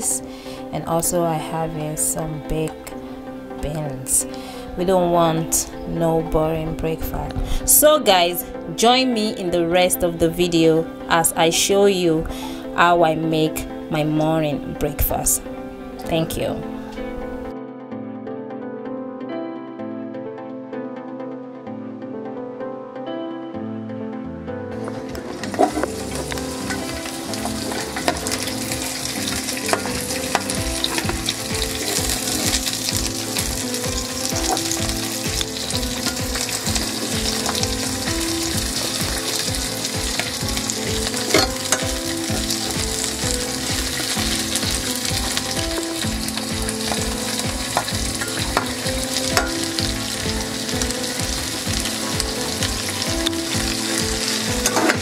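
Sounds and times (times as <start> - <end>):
vegetables sizzling in oil: 25.1 - 55.0.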